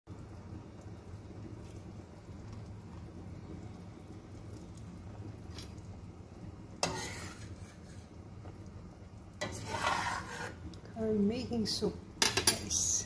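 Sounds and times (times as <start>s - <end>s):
ladle stirring soup: 4.4s - 8.7s, 9.3s - 10.9s.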